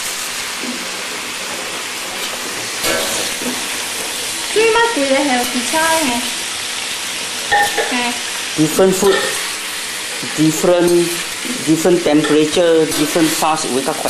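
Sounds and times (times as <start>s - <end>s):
food sizzling in hot oil: 0.0s - 14.0s
metal spatula scraping wok: 11.4s - 14.0s.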